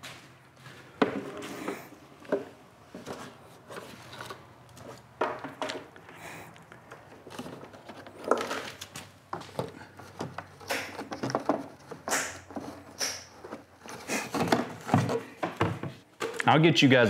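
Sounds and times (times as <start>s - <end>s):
equipment knocks and clunks: 5.2s - 5.9s, 14.4s - 16.0s.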